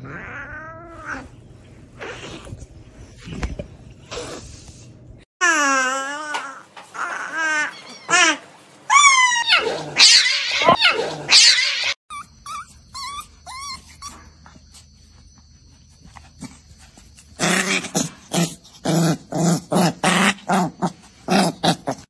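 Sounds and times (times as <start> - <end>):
dog whimpering: 5.4 - 14.5
dog growling grunts: 17.4 - 22.0.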